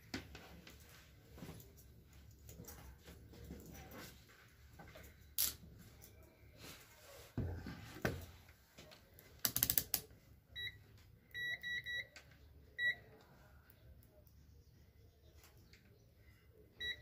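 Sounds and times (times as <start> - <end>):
multimeter short beeps: 11.4 - 12.2.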